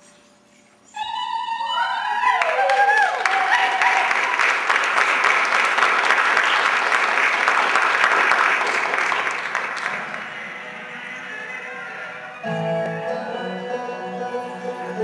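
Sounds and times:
audience applauding: 0:02.3 - 0:11.5.

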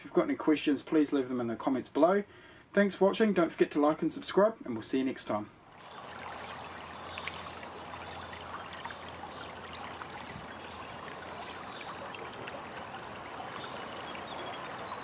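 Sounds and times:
river flowing over stones: 0:05.6 - 0:15.0.

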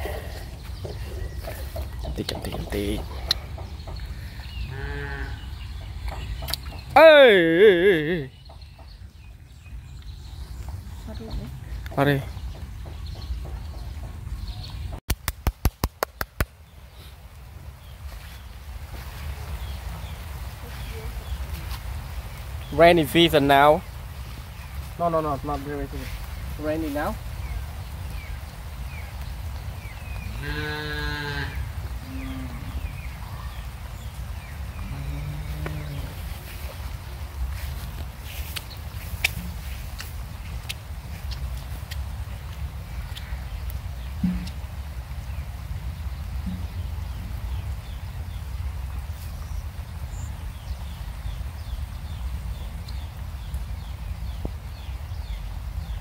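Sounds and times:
cow mooing: 0:04.7 - 0:05.4, 0:30.4 - 0:32.8, 0:34.8 - 0:36.2.

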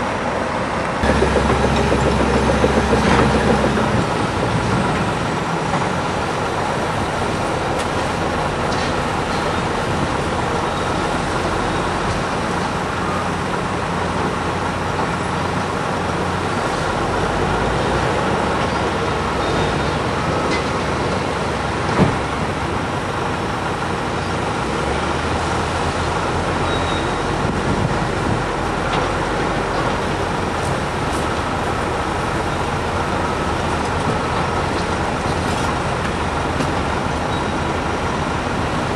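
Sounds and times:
heavy diesel machinery engines: 0:00.0 - 0:38.9.

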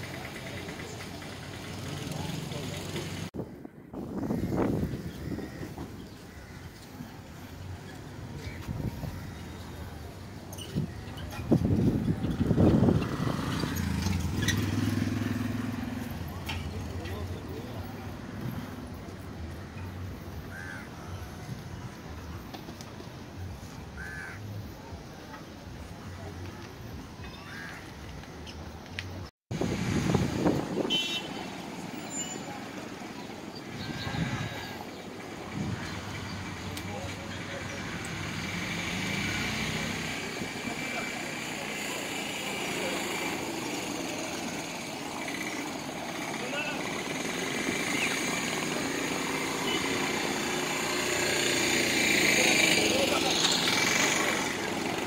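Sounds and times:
cars driving past: 0:00.0 - 0:03.4, 0:04.2 - 0:20.8, 0:29.5 - 0:55.0
street traffic noise: 0:00.0 - 0:55.0
vehicle passing close: 0:11.1 - 0:19.5, 0:29.5 - 0:55.0.

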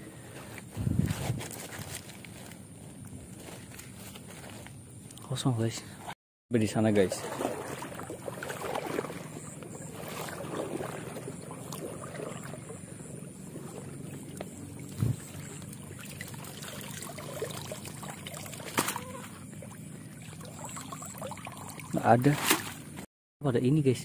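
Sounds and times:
water sloshing and trickling: 0:06.5 - 0:23.1.

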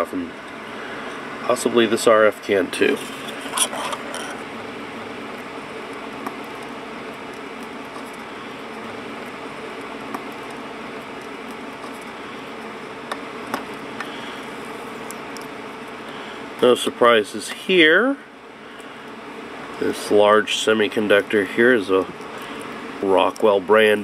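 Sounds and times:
room hum: 0:00.0 - 0:24.0
fingernail scratching paper label: 0:11.5 - 0:12.1.

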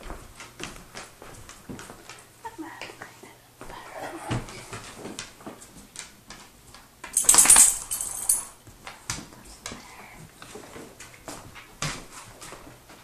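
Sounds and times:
rabbit claws tapping on wooden floor: 0:05.0 - 0:09.8.

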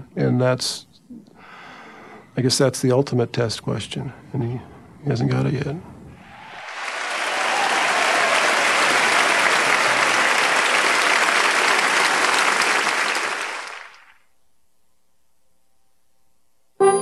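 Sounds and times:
crowd applauding: 0:06.2 - 0:14.2.

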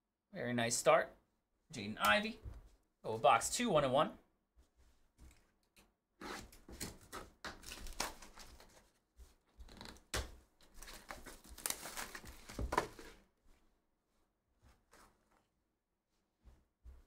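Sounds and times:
plastic shrink wrap tearing: 0:10.8 - 0:12.6.

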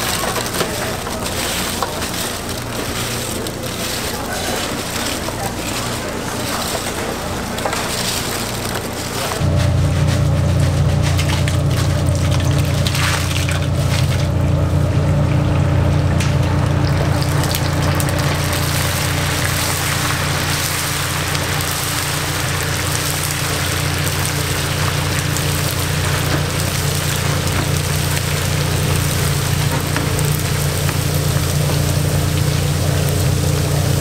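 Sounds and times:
steady low hum: 0:00.0 - 0:34.0
food sizzling in hot oil: 0:15.6 - 0:34.0.

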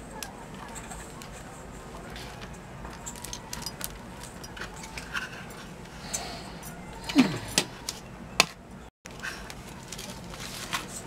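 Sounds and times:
paper rustling: 0:00.5 - 0:05.8, 0:09.2 - 0:11.0.

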